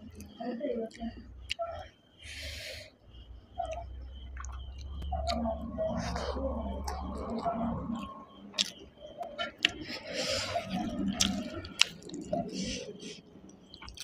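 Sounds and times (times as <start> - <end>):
chewing with wet clicks: 0.1 - 1.9, 3.5 - 14.0
fingers squishing food: 3.6 - 14.0.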